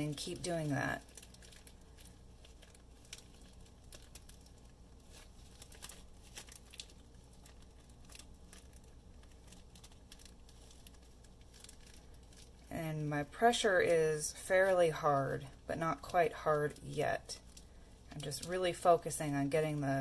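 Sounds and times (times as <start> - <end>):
plastic bag crinkling: 0.0 - 20.0.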